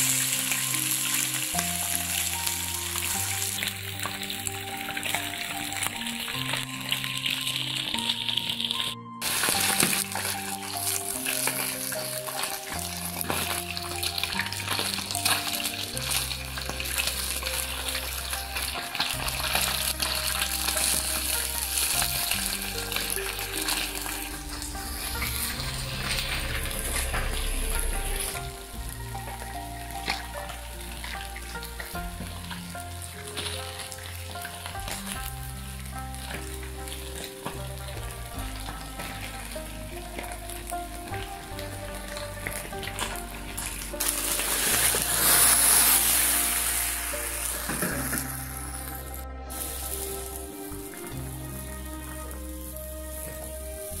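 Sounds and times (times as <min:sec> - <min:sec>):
background music: 0:00.0 - 0:54.0
fish sizzling in hot oil: 0:00.0 - 0:54.0.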